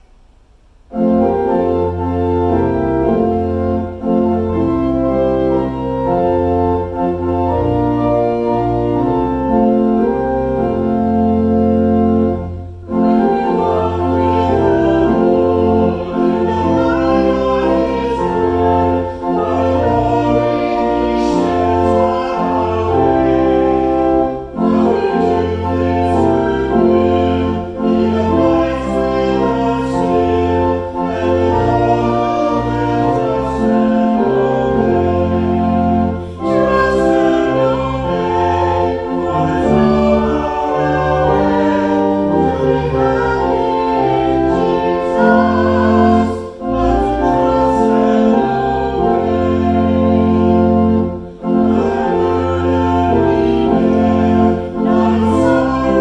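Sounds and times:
church organ playing a hymn: 0.0 - 56.0
people singing along: 13.2 - 35.5, 36.2 - 50.2, 51.7 - 56.0.

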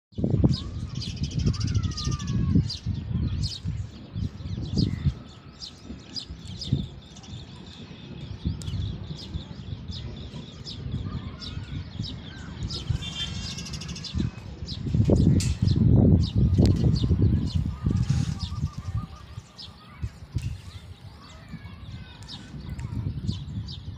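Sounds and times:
small birds chirping: 0.1 - 23.9.

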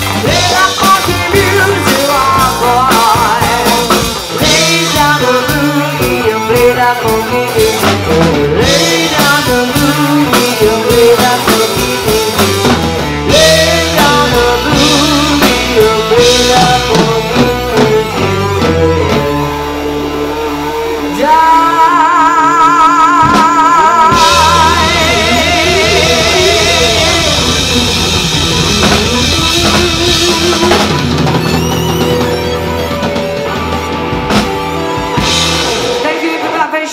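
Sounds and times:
woman singing lead vocals: 0.0 - 19.7, 20.6 - 27.8
live rock band playing: 0.0 - 36.9.

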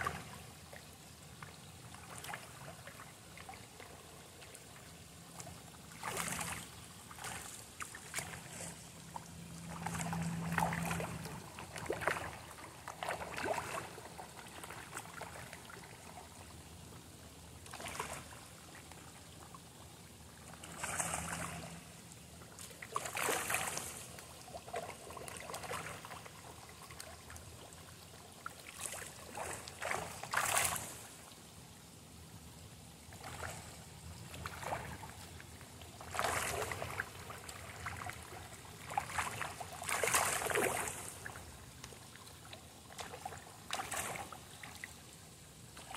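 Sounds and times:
fish splashing at water surface: 5.4 - 16.1, 17.7 - 18.4, 20.4 - 27.6, 28.6 - 31.1, 36.0 - 41.9, 42.9 - 44.4.

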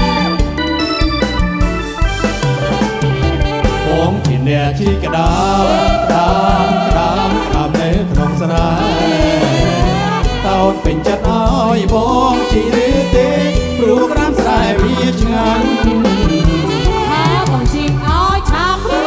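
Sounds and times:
live band dance song: 0.0 - 19.0
man and woman singing together: 3.9 - 19.0
steady bass beat: 5.1 - 10.6, 11.3 - 17.6.

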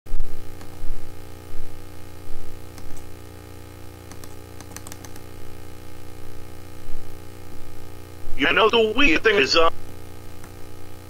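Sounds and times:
electrical mains hum: 0.1 - 11.0
sharp clicks: 4.1 - 5.2.

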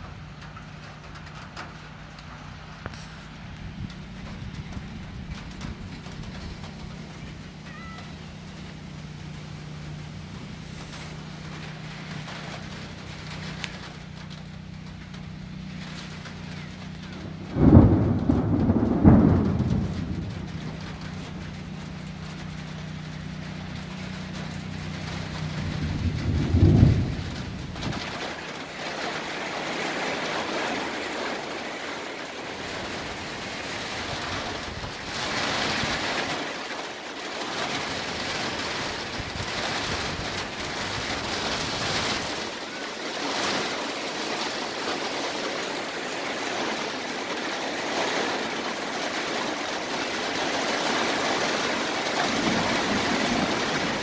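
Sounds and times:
heavy rain hissing: 0.0 - 54.0
thunder rumbling: 2.6 - 10.1, 16.3 - 36.6, 37.6 - 42.6, 50.7 - 54.0.

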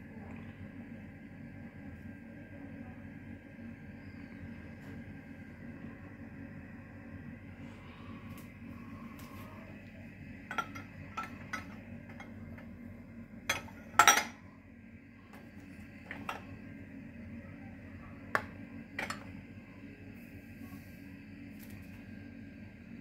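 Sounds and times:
dishes clinking together: 13.5 - 14.4.

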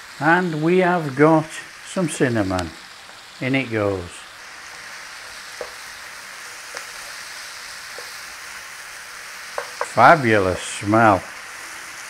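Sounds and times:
vegetables sizzling in a frying pan: 0.0 - 12.0
spatula knocking on pan: 5.6 - 5.8, 9.5 - 10.0.

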